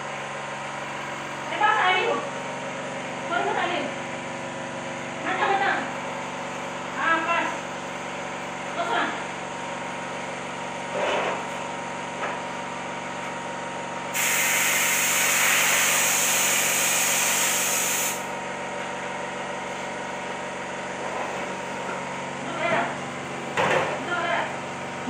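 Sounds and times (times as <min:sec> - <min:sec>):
compressed air spray gun hissing: 0:14.1 - 0:18.3.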